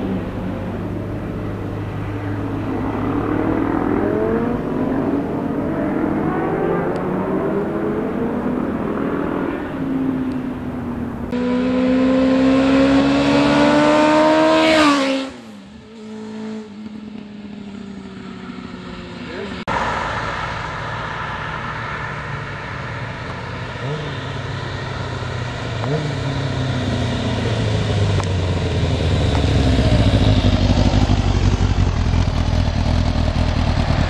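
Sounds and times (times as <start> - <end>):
motorcycle engines accelerating: 0.0 - 34.0
motorcycle revving and passing by: 0.0 - 34.0.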